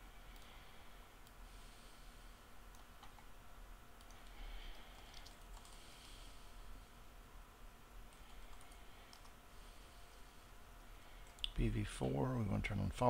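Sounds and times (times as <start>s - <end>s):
low steady hum: 0.0s - 13.0s
keyboard keystrokes: 5.0s - 5.8s.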